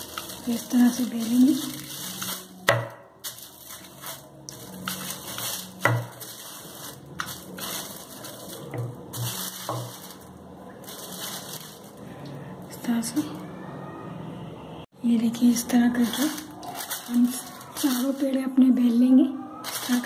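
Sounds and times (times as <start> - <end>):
paper rustling under rolling pin: 0.0 - 12.2, 15.7 - 18.5, 19.6 - 20.0.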